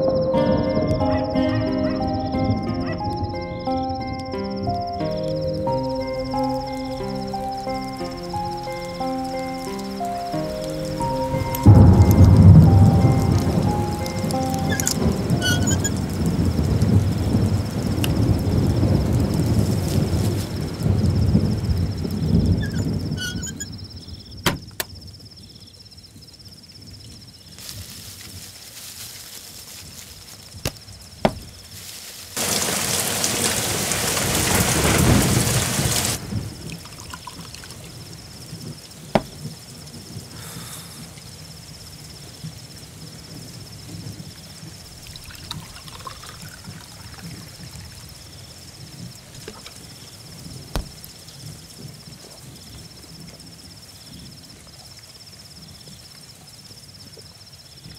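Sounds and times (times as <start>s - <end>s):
steady rain: 0.8s - 23.9s, 25.9s - 57.9s
thunder: 10.7s - 23.7s, 32.4s - 37.1s, 42.2s - 48.1s
sharp knocks: 30.6s - 31.5s, 39.2s - 39.4s, 50.7s - 51.1s.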